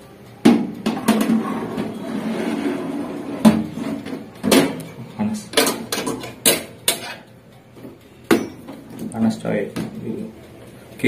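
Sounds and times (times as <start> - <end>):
metal tray scraping along rack: 0.9 - 4.8.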